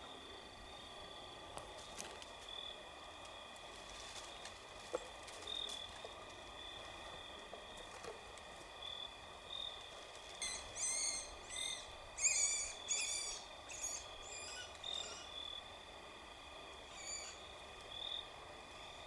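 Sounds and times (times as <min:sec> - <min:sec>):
night insects chorus: 0:00.0 - 0:19.0
woodpecker squealing calls: 0:10.4 - 0:15.4, 0:16.9 - 0:17.4.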